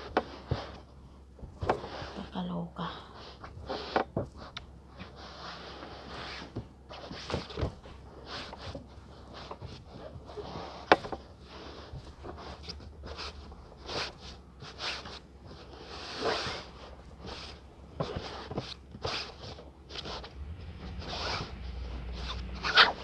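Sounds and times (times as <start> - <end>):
cloth rustling: 3.1 - 23.0.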